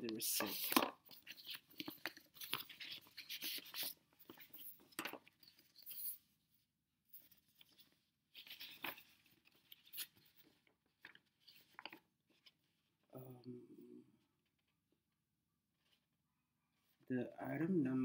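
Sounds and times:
paper rustling and crinkling: 0.1s - 6.2s, 7.2s - 12.6s.

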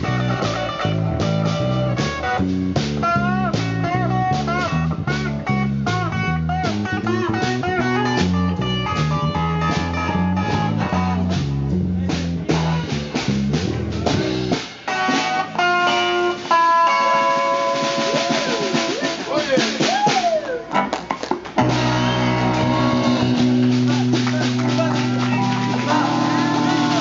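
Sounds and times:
electric guitar: 0.0s - 12.0s, 12.6s - 19.3s, 20.3s - 27.0s
bass guitar line: 0.0s - 27.0s
music with long held notes: 21.6s - 27.0s.

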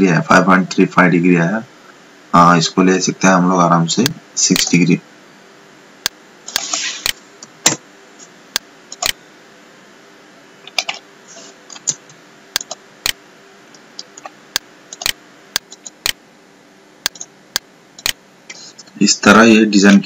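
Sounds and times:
faint steady hum: 0.0s - 20.0s
computer mouse and keyboard clicks: 8.9s - 9.2s, 10.6s - 11.0s, 11.7s - 16.2s, 17.0s - 17.3s, 18.0s - 18.2s.

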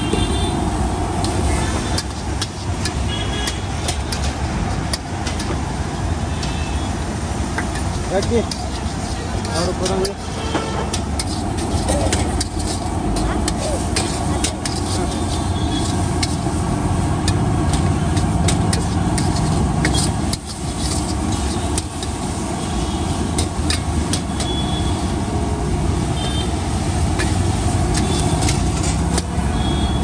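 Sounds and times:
road traffic rumble: 0.0s - 30.0s
ladle scraping a steel wok: 1.2s - 5.6s, 7.6s - 24.3s, 26.9s - 29.3s.

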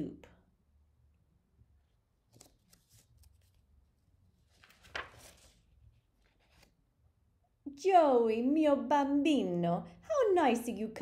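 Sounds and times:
paper handling rustles: 2.2s - 6.8s
book page turning: 2.2s - 6.9s.

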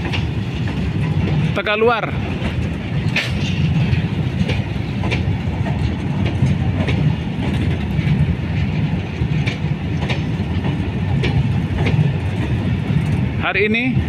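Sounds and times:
train wheels rumbling on rail: 0.0s - 14.0s
sharp wheel clack: 3.1s - 5.2s.

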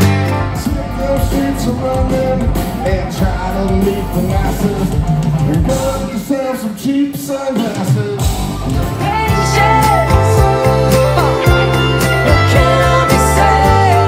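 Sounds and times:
electric guitars: 0.0s - 6.3s, 7.6s - 14.0s
drum kit: 0.0s - 14.0s
man singing: 0.0s - 14.0s.

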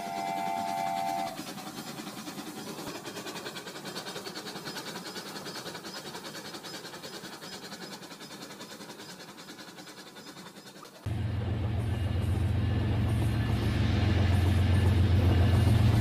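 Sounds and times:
toy train whistle: 0.0s - 1.5s
toy train clattering on track: 0.0s - 11.0s.

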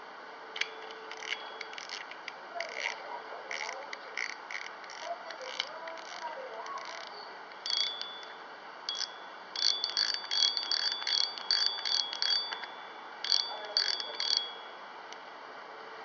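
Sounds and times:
high metallic ringing: 0.6s - 2.0s, 2.6s - 15.0s
fishing reel drag clicking: 1.1s - 7.1s, 8.9s - 12.6s.

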